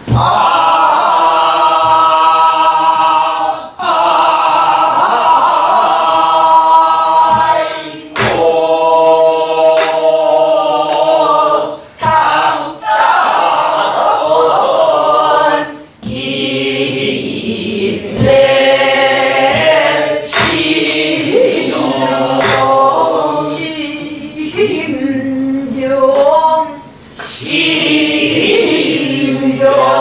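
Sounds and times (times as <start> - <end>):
barrel drum strokes: 0.0 - 3.2.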